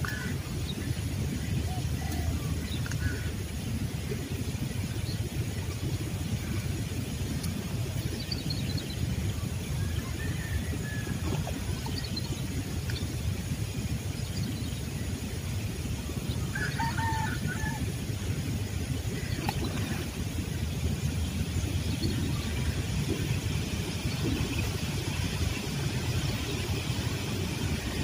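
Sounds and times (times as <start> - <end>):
low outdoor rumble: 0.0 - 28.0
distant rooster crowing: 16.5 - 17.9.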